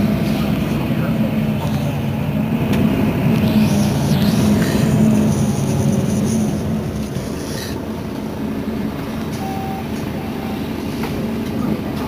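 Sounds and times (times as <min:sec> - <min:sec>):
bus engine idling: 0:00.0 - 0:12.0
faint short beeps: 0:09.4 - 0:10.7.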